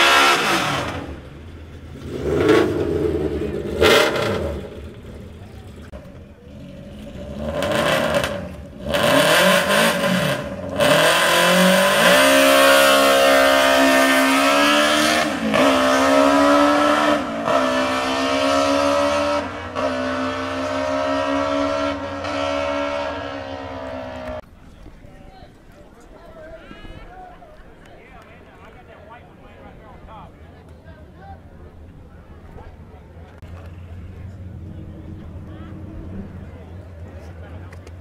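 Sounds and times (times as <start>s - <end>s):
race car engine at full throttle: 0.0s - 24.4s, 32.4s - 38.0s.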